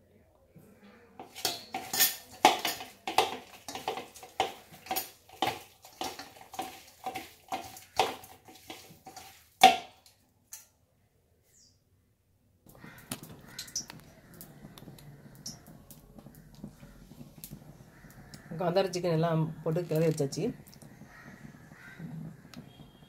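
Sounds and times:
hand squelching food in steel bowl: 0:01.2 - 0:09.7.

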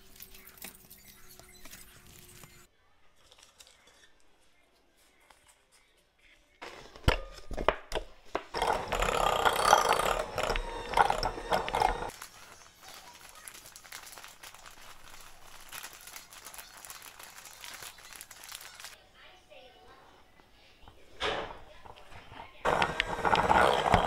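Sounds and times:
electric hand mixer beating: 0:08.5 - 0:12.1, 0:22.6 - 0:24.0.

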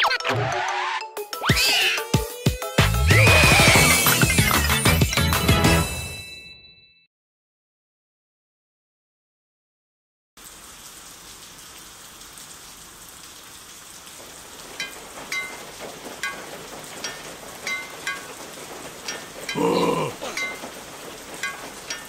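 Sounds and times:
steady rain: 0:10.4 - 0:22.0
water drops plinking: 0:14.8 - 0:20.8, 0:21.4 - 0:22.0.

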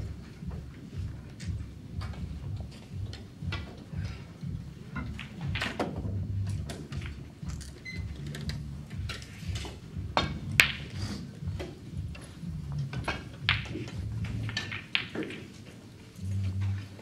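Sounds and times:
low room rumble: 0:00.0 - 0:15.0, 0:16.0 - 0:17.0
cue striking ball click: 0:09.6 - 0:11.0.

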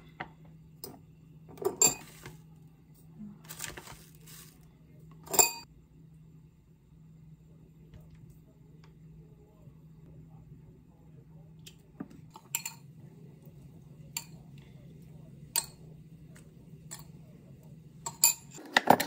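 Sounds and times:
faint low hum: 0:00.0 - 0:18.6
utensils clinking against dishes: 0:00.8 - 0:02.4, 0:05.2 - 0:05.7, 0:12.3 - 0:12.9, 0:14.1 - 0:14.4, 0:16.9 - 0:17.2, 0:18.0 - 0:19.0.

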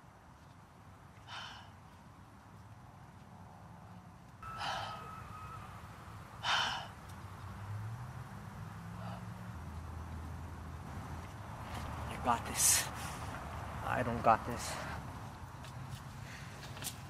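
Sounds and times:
person sighing: 0:04.5 - 0:05.2.

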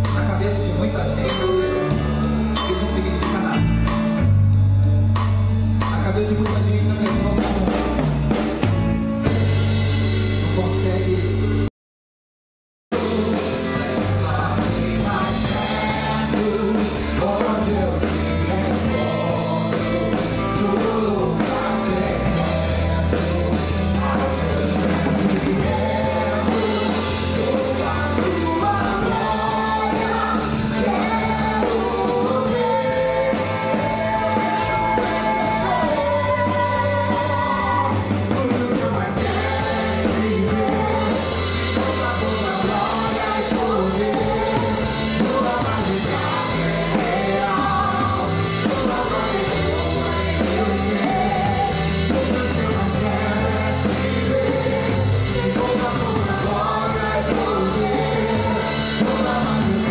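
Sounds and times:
bass: 0:00.0 - 0:11.7, 0:12.9 - 0:59.9
drum kit with cymbals: 0:00.0 - 0:11.7, 0:12.9 - 0:59.9
guitar: 0:00.0 - 0:11.7, 0:12.9 - 0:59.9
keyboard: 0:00.0 - 0:11.7, 0:12.9 - 0:59.9
voices singing: 0:13.0 - 0:59.9.

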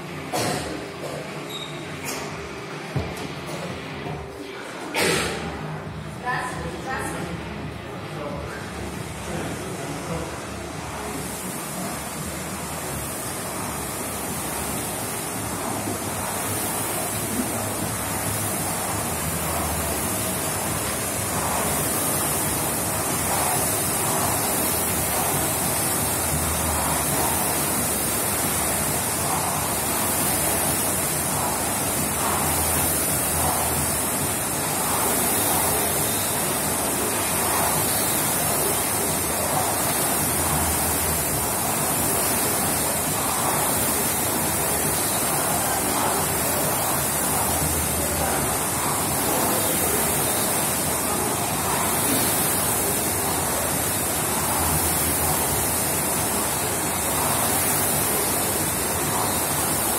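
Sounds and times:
rowing machine fans whooshing: 0:00.0 - 0:59.9.

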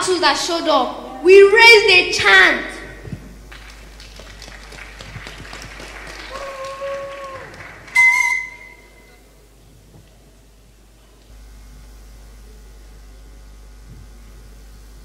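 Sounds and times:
crowd noise: 0:00.9 - 0:10.2
scattered clapping: 0:03.1 - 0:09.2
loud whistle-like tone: 0:07.9 - 0:09.2
held tone: 0:08.0 - 0:09.2.

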